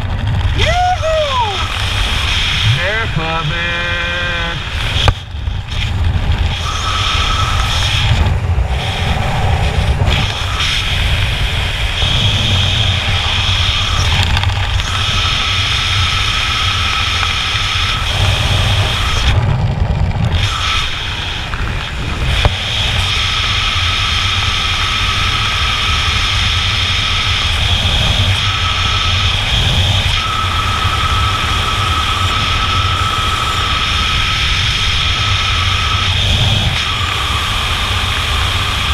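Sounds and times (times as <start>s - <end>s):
wind buffeting microphone: 0.0s - 38.9s
thin whistle: 30.2s - 34.3s.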